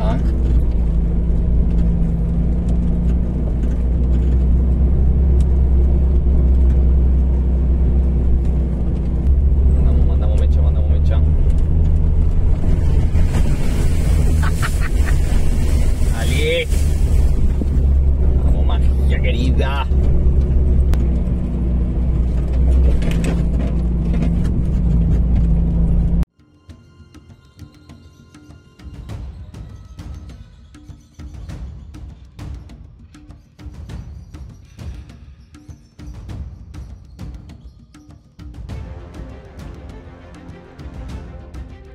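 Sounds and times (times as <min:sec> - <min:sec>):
van engine running: 0:00.0 - 0:26.3.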